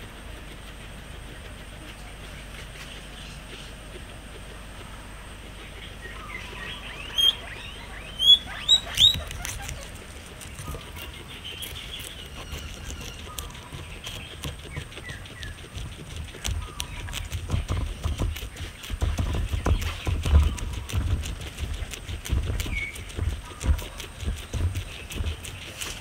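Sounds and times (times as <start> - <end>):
guinea pig chewing grass: 0.0 - 26.0
guinea pig chirps: 0.0 - 26.0.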